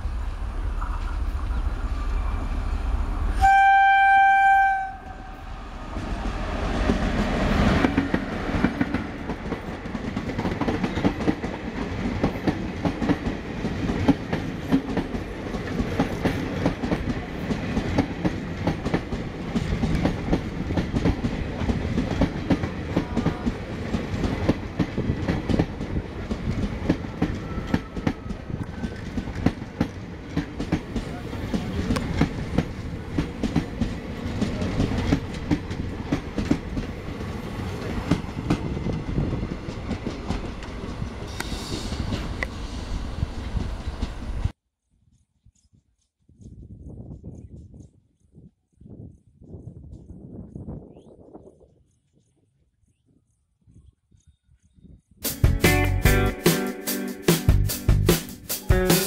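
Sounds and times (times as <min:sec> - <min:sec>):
train passing with rumble: 0:00.0 - 0:44.6
train horn: 0:03.3 - 0:05.7.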